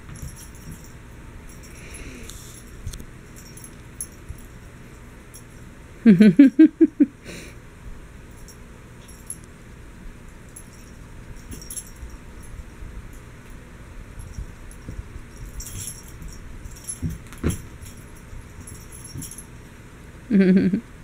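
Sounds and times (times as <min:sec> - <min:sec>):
paws thumping on a rug: 0:00.0 - 0:01.0, 0:14.2 - 0:19.5
collar bell jingling: 0:00.0 - 0:06.7, 0:08.3 - 0:09.5, 0:10.3 - 0:19.8.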